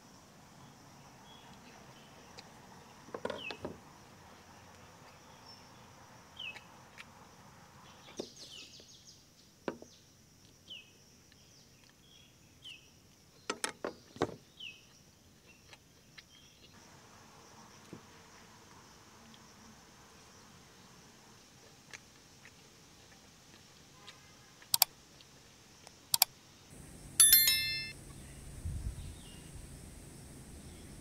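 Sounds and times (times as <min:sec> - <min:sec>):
high insect drone: 0:16.8 - 0:21.6, 0:26.7 - 0:31.0.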